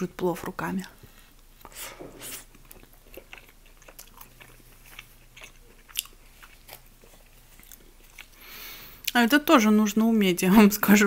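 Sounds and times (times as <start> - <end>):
person chewing with wet clicks: 2.4 - 8.4, 9.0 - 10.2.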